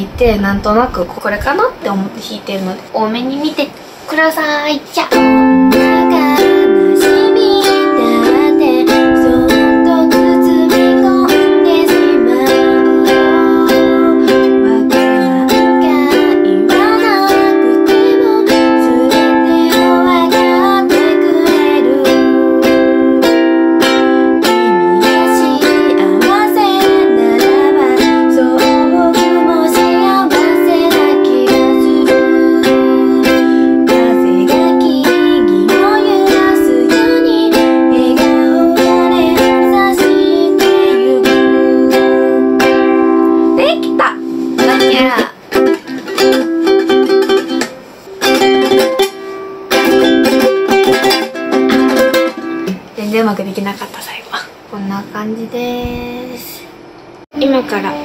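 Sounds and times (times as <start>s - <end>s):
woman singing: 5.1s - 45.4s, 57.7s - 58.0s
ukulele strummed in chords: 5.1s - 52.9s.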